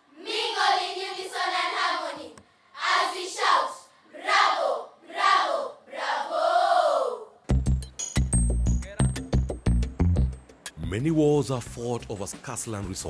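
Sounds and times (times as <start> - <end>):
children singing in unison: 0.0 - 7.2.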